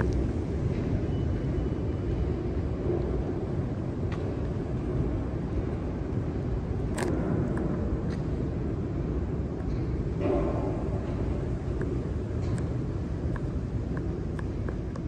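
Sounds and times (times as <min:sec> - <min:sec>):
metro station low rumble: 0:00.0 - 0:15.0.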